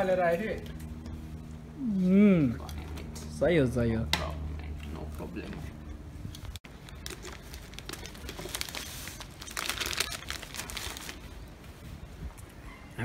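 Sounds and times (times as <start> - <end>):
crisps crumbled by hand: 6.7 - 11.2
plastic bags crinkling: 6.7 - 11.4.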